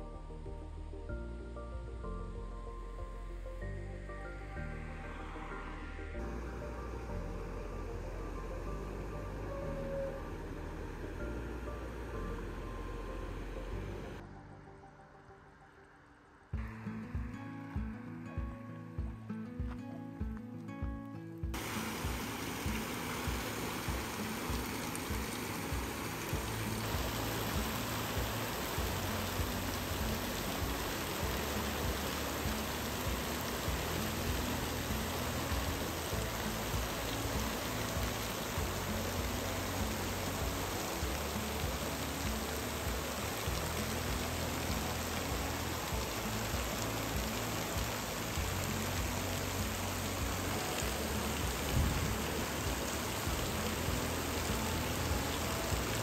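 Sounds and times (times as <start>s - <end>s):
river water splashing over weir: 21.6s - 56.0s
water pouring off water wheel: 21.6s - 56.0s.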